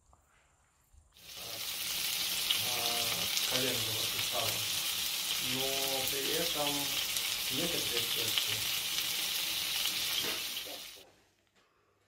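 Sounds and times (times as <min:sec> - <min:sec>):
patties sizzling in oil: 0:01.2 - 0:11.0.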